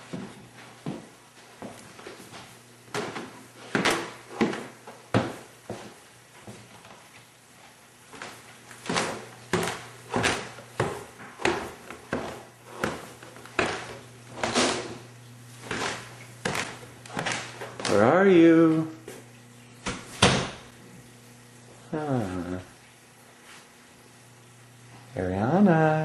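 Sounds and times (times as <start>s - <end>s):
footsteps on a hard floor: 0.0s - 20.3s
faint steady hum: 0.0s - 26.0s
doors and drawers opening and shutting: 2.9s - 5.4s, 8.2s - 18.1s, 19.8s - 20.7s.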